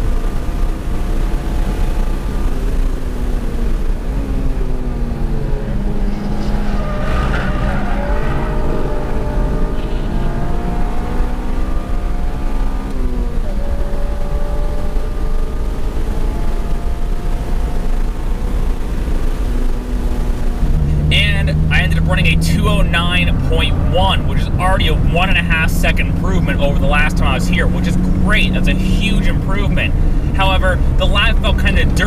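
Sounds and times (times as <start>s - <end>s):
car engine accelerating: 0.0s - 32.0s
road noise: 0.0s - 32.0s
tyre squeal: 6.1s - 10.3s.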